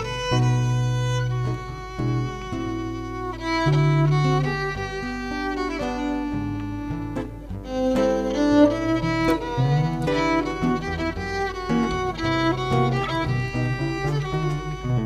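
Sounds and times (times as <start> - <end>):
classical guitar accompaniment: 0.0 - 15.0
violin melody: 0.0 - 15.0.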